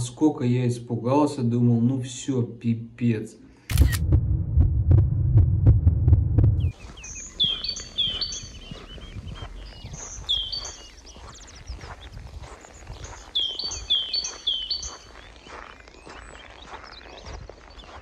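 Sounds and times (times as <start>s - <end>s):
footsteps crunching on snow: 6.6s - 18.0s
songbird chirping: 6.6s - 18.0s.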